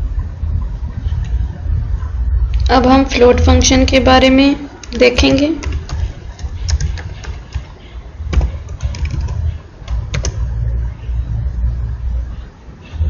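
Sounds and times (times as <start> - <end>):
low rumble: 0.0 - 3.9
computer keyboard typing: 4.8 - 7.7, 8.3 - 10.5.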